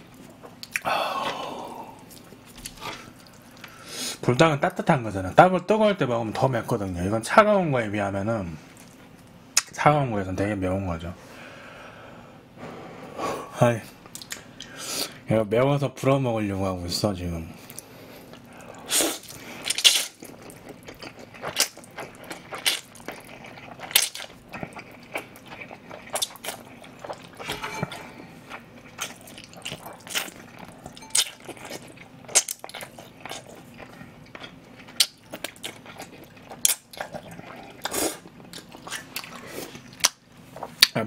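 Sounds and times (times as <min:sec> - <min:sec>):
wet chewing: 0:02.0 - 0:03.8, 0:17.7 - 0:41.0.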